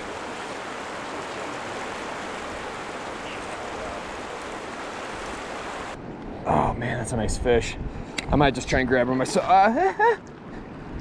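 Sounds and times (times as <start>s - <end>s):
river rushing over boulders: 0.0s - 6.0s.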